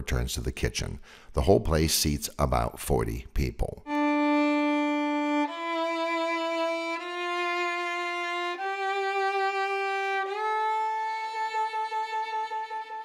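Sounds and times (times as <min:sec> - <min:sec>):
violin long held notes: 0:03.8 - 0:13.0.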